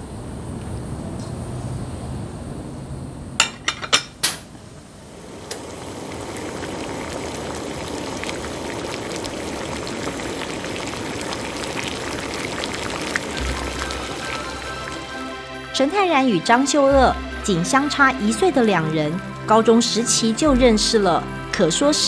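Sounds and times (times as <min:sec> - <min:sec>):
pot of broth bubbling: 0:04.8 - 0:15.4.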